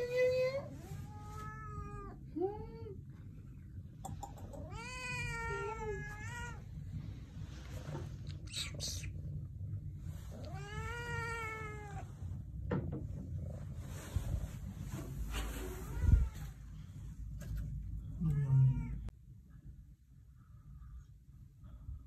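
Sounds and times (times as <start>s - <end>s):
cat meowing: 0.8s - 2.2s, 4.6s - 6.7s, 10.4s - 12.1s, 15.6s - 16.6s, 18.2s - 19.1s.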